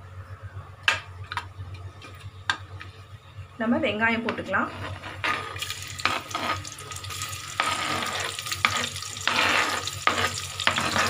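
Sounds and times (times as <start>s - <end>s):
onions sizzling in hot oil: 5.2s - 11.0s.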